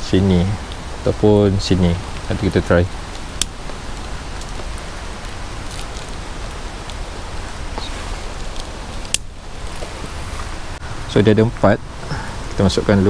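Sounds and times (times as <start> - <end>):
steady outdoor hiss: 0.0 - 13.0
handling rustles and ticks: 2.0 - 10.7.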